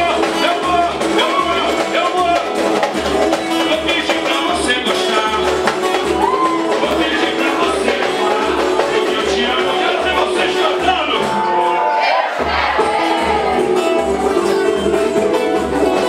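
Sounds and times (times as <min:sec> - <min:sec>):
band playing upbeat song: 0:00.0 - 0:16.0
lead singer singing: 0:03.5 - 0:14.1.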